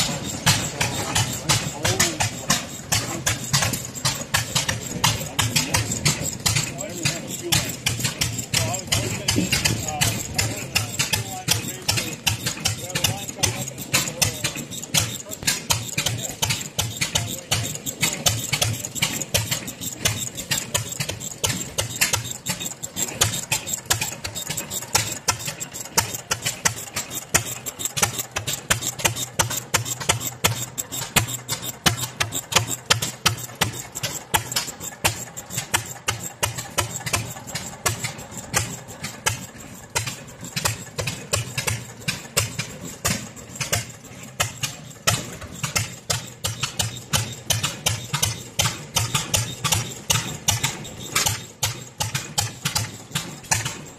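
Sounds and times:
old gas engines popping: 0.0s - 53.9s.

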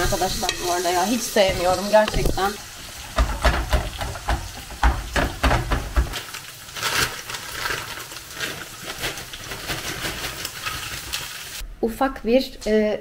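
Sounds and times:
spatula scraping pan: 0.0s - 4.8s
meat sizzling in frying pan: 0.0s - 11.6s.

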